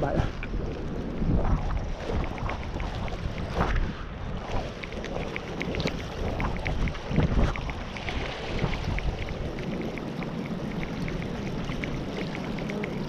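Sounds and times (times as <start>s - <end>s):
wind rumbling on microphone: 0.0s - 13.0s
spinning reel ticking: 4.8s - 13.0s.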